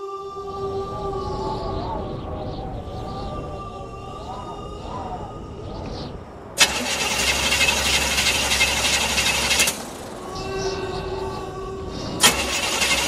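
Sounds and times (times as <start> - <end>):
faint steady hum: 0.0 - 13.0
pickup truck engine rumbling: 6.5 - 10.8.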